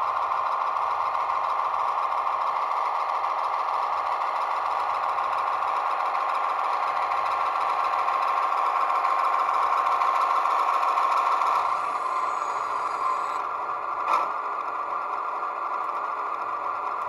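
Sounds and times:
model diesel engine sound: 0.0s - 17.0s.

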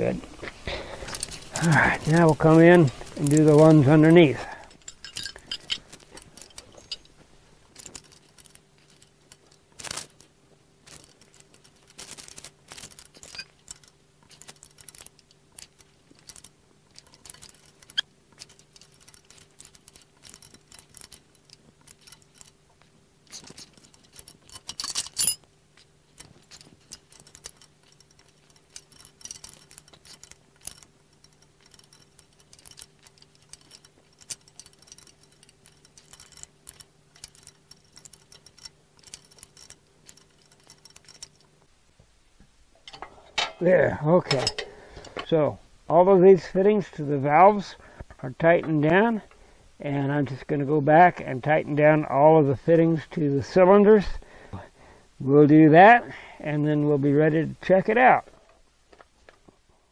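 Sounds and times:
hoses shifting: 0.0s - 50.6s
faint steady hum: 0.0s - 59.9s
metal tools clinking on fittings: 1.0s - 10.2s, 10.9s - 41.6s, 42.8s - 45.4s
clatter: 1.0s - 41.7s.

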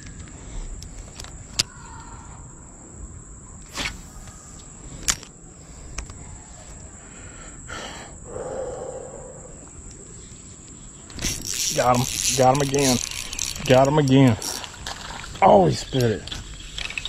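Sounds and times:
high-pitched insect drone: 4.0s - 17.0s
whirring rustle: 9.9s - 17.0s
fishing reel clicks: 11.1s - 14.9s.

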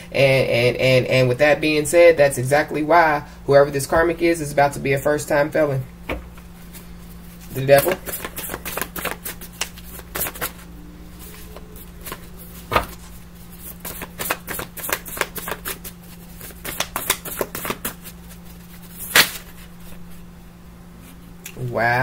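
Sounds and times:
steady low hum: 0.0s - 22.0s
cards being shuffled: 6.4s - 20.2s
card snap: 16.6s - 18.0s, 19.1s - 19.5s.

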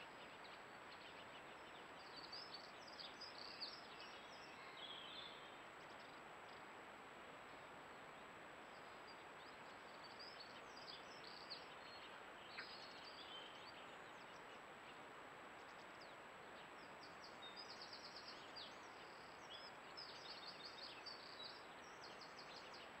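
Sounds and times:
distant bird song: 0.0s - 6.7s, 7.4s - 23.0s.

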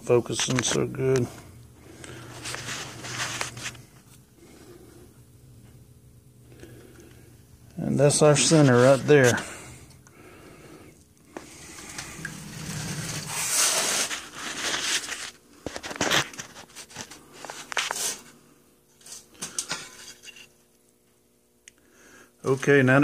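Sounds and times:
rustling handling noise: 2.1s - 4.2s, 11.3s - 18.2s.

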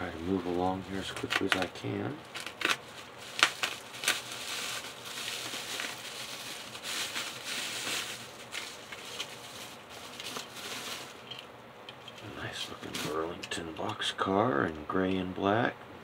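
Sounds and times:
bubble wrap crinkling: 0.0s - 11.5s.

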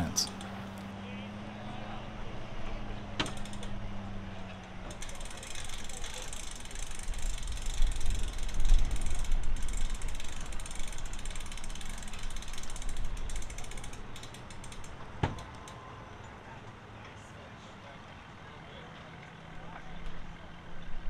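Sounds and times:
outboard motor rattling: 0.0s - 0.9s, 2.6s - 15.2s.

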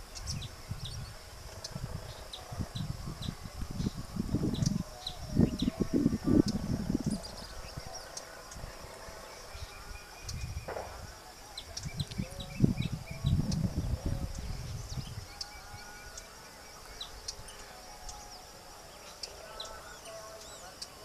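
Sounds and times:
bird chirps: 0.0s - 21.0s
high-pitched insect drone: 0.0s - 21.0s.

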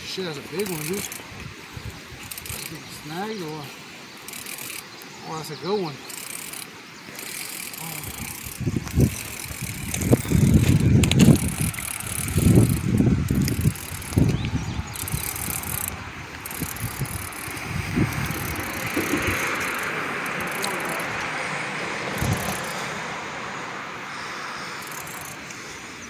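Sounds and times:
fishing reel clicking: 0.5s - 1.3s, 2.2s - 21.3s, 22.0s - 22.9s, 24.6s - 25.6s
low rumbles: 7.7s - 23.8s.

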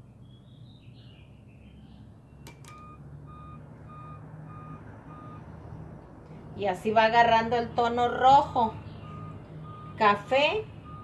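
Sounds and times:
short electronic beeps: 2.4s - 5.4s, 9.0s - 10.1s.

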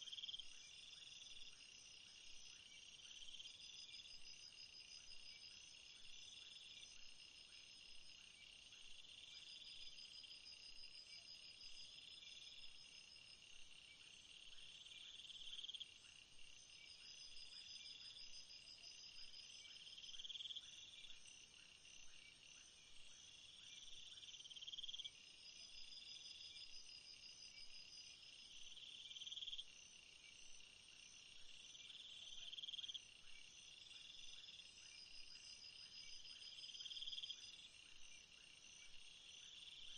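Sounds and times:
crickets and insects chorus: 0.0s - 39.9s.

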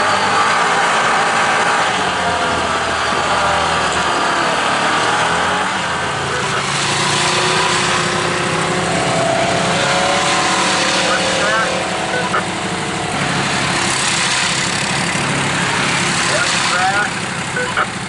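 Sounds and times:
utv engine running: 0.0s - 18.0s.

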